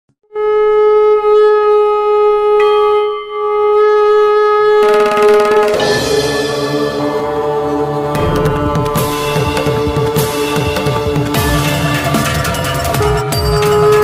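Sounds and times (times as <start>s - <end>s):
conch shell blown: 0.2s - 14.0s
drums and instruments playing: 4.9s - 14.0s.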